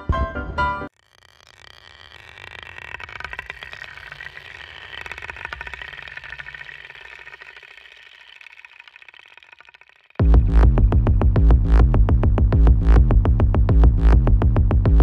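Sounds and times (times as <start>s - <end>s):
small motor whirring and ticking: 0.9s - 10.8s.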